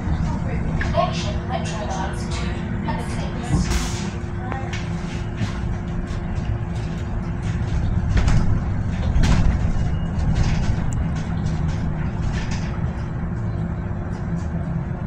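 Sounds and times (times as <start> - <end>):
bus body rattling and knocking: 0.0 - 15.0
constant hum: 0.0 - 15.0
low road rumble: 0.0 - 15.0.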